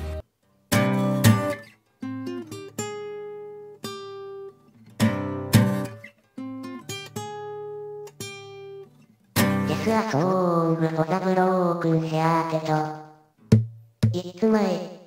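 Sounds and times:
acoustic guitar strummed chords: 0.0 - 10.2
acoustic guitar picked notes: 0.0 - 11.6.

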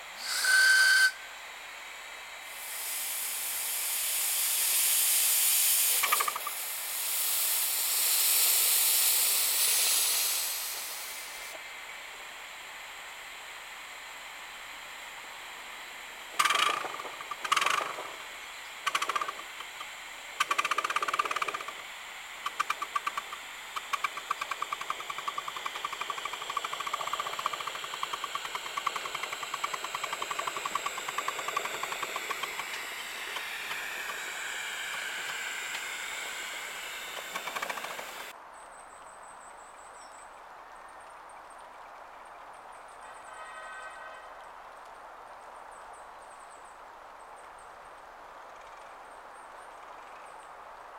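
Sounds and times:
steam locomotive exhaust chuffs: 0.0 - 11.6, 14.3 - 38.3
outdoor ambience: 0.0 - 50.9.

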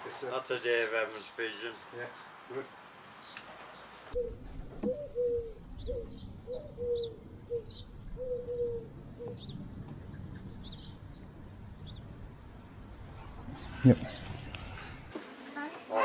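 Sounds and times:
pigeons cooing: 3.6 - 9.6.

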